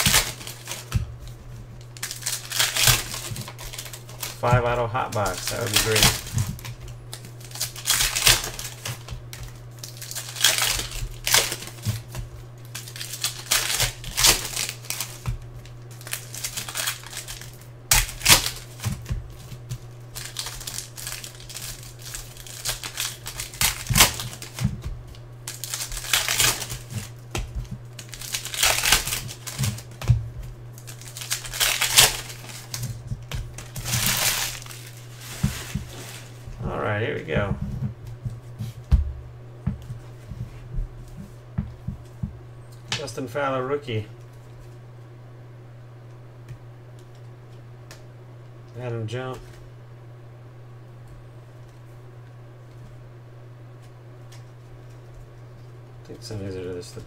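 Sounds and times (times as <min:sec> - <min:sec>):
cards rustling: 0:00.0 - 0:37.4
foil wrappers crinkling and tearing: 0:00.0 - 0:37.4
steady low hum: 0:00.0 - 0:57.0.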